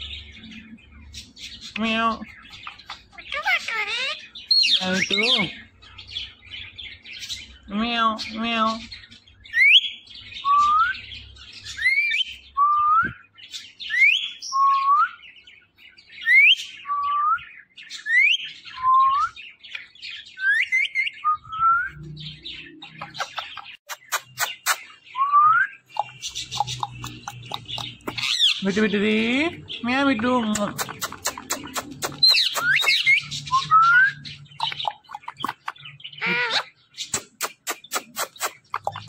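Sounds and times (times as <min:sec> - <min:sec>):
sharp clicks: 0:30.5 - 0:33.0.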